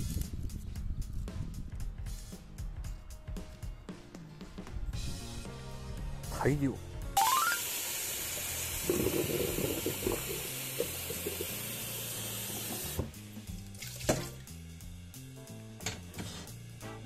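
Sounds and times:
tap water splashing into a pot: 8.4 - 14.4.

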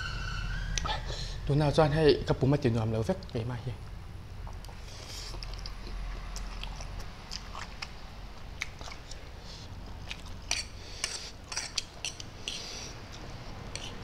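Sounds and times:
man chewing and slurping noodles: 4.5 - 14.0
fork scraping on a plate: 10.5 - 13.0, 13.7 - 14.0.

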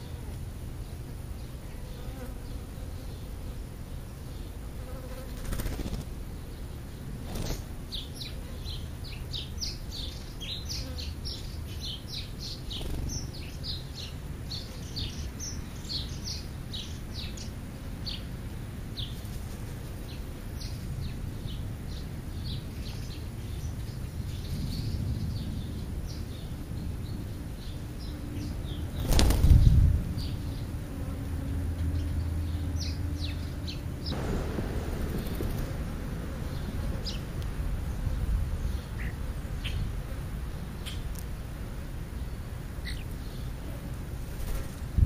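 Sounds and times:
small songbirds chirping: 0.0 - 45.0
loud rushing burst: 34.1 - 37.8.

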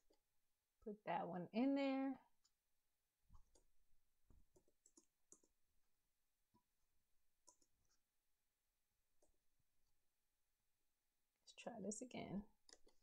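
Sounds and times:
mouse and keyboard clicks: 4.5 - 5.5, 12.6 - 13.0.

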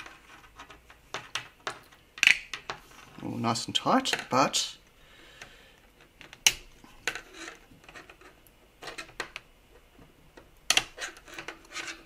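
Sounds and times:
plastic parts clicking: 0.0 - 2.8.

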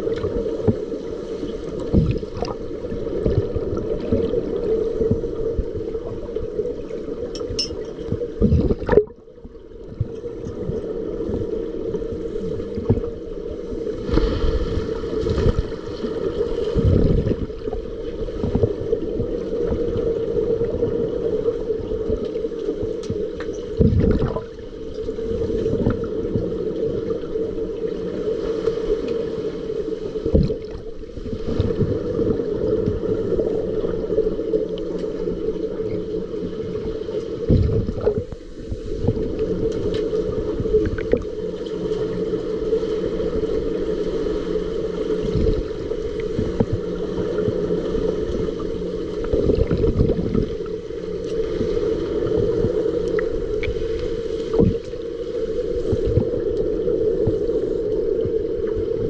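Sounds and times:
muffled underwater hum: 0.0 - 59.0
underwater gurgling: 0.0 - 59.0
muffled underwater thumps: 23.8 - 24.4.

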